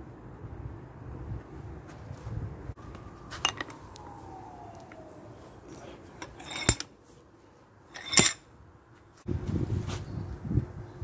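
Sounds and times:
steel vise handle clanking: 6.2s - 6.9s, 8.0s - 8.4s.

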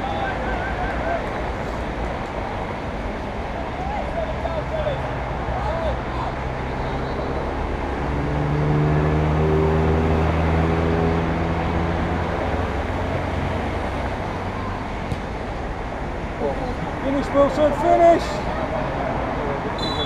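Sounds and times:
vehicle engine droning past: 6.2s - 14.0s.

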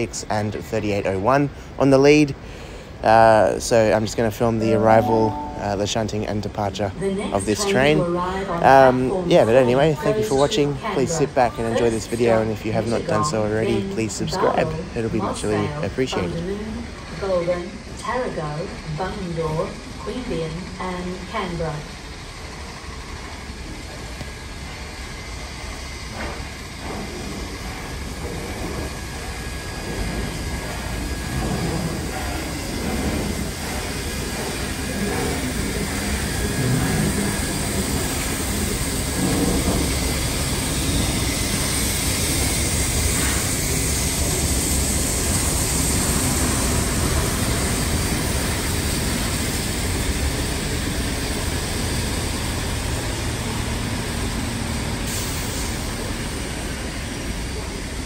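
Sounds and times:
train wheels rumbling on rail: 5.8s - 58.0s
steam hissing: 21.5s - 58.0s.

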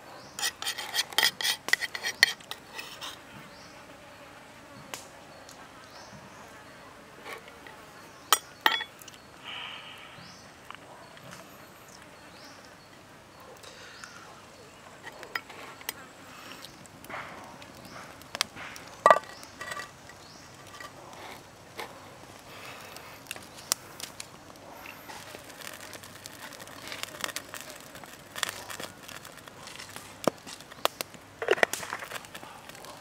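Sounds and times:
faint insect buzzing: 2.1s - 10.5s.

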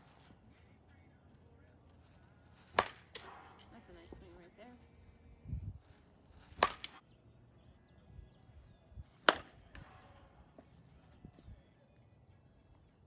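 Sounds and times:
bat hitting softball: 2.6s - 4.2s, 6.4s - 7.0s, 9.2s - 10.3s.

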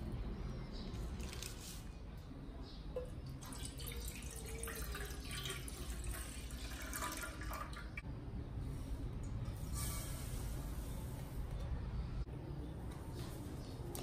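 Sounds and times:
milk pouring into saucepan: 3.3s - 8.0s.

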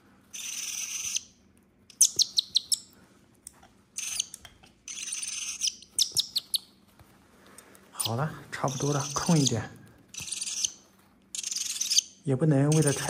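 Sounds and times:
clicking chirps: 1.9s - 2.8s.

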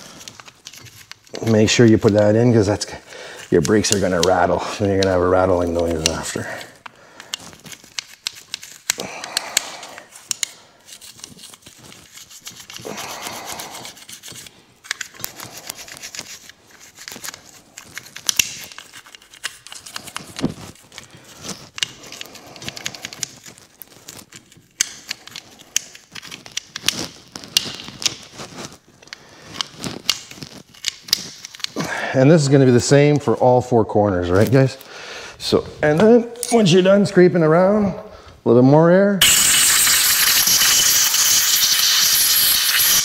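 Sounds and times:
toothbrush bristles scraping metal: 10.2s - 20.2s, 39.2s - 43.0s.

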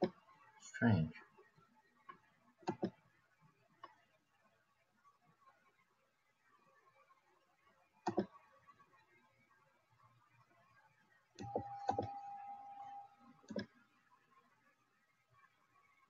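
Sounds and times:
steady single tone: 11.4s - 13.6s.

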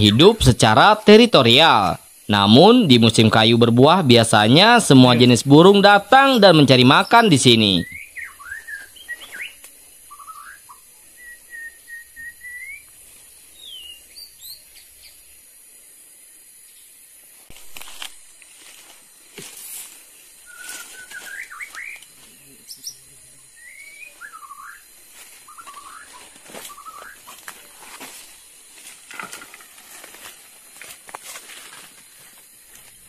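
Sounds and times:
birds chirping: 0.0s - 15.6s, 20.0s - 29.0s.

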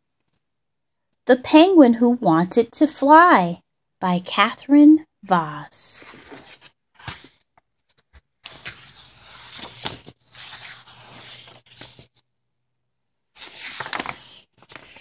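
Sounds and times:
book pages rustling: 6.0s - 12.2s, 13.4s - 15.0s.

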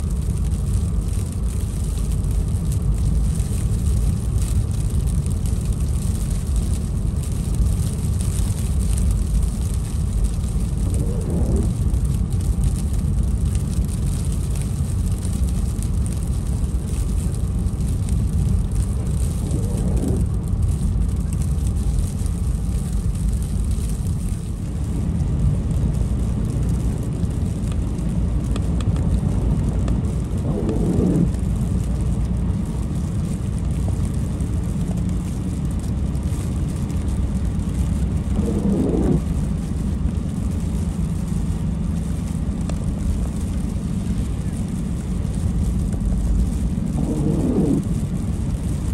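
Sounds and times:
car driving on a wet road: 0.0s - 48.9s
windshield wipers sweeping: 13.6s - 24.6s.

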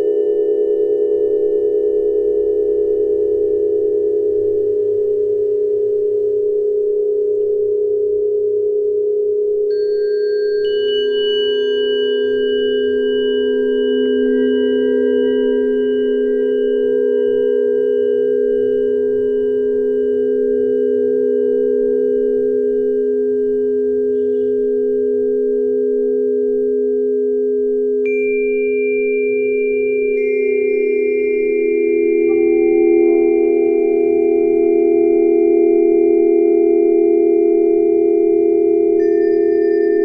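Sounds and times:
high bell-like tones: 9.7s - 21.8s, 28.1s - 36.9s, 38.9s - 40.0s
low pulsing meditation drone: 9.7s - 25.7s, 28.0s - 40.0s.

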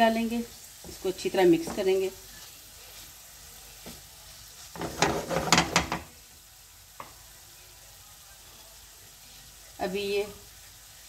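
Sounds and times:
faint sizzle: 0.0s - 11.0s
wooden spoon scraping a pan: 0.8s - 6.1s.

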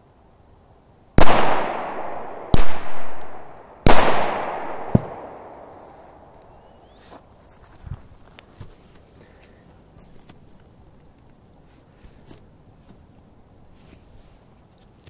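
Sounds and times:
firecrackers exploding with echo: 1.2s - 6.4s
sharp firecracker crack: 1.2s - 6.5s.

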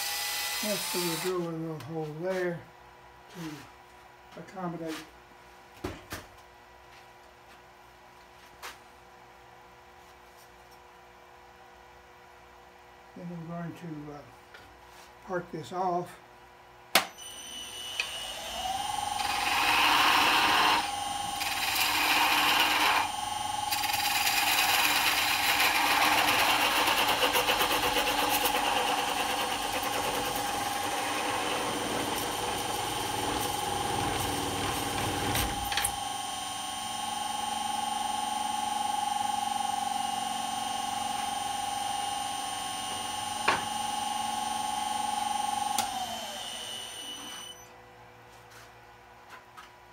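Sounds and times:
lathe motor whine: 17.2s - 47.7s
tool scraping spinning wood: 19.2s - 23.1s, 23.7s - 35.7s.

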